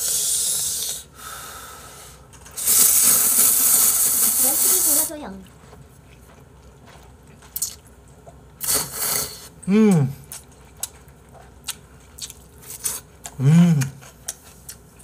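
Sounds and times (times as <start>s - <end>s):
noodles slurped loudly: 2.6s - 5.3s
chewing: 4.7s - 8.8s, 9.9s - 15.0s
person humming: 9.6s - 10.2s, 13.4s - 14.0s.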